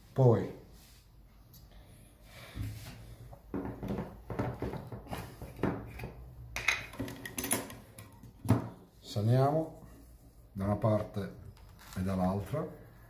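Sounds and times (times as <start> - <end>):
utensils and dishes clinking: 6.6 - 7.9.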